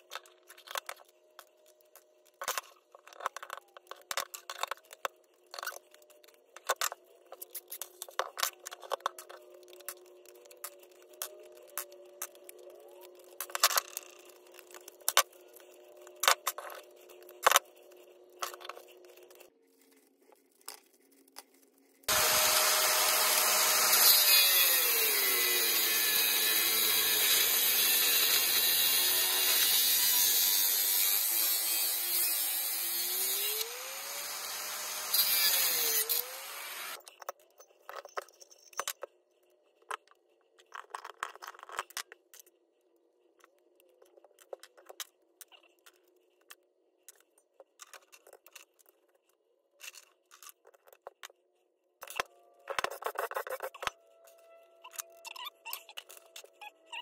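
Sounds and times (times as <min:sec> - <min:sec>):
angle grinder cutting steel: 0:22.1 - 0:37.0
hand tools clicking and snipping: 0:22.1 - 0:37.1.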